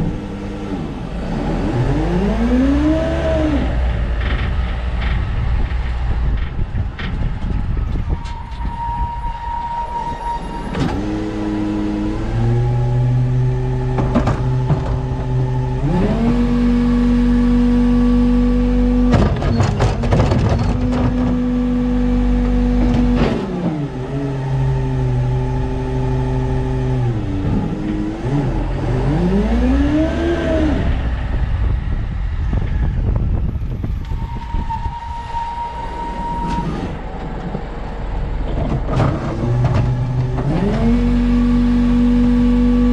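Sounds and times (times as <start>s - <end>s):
garbage truck engine: 0.0s - 42.9s
clanking: 19.0s - 21.4s.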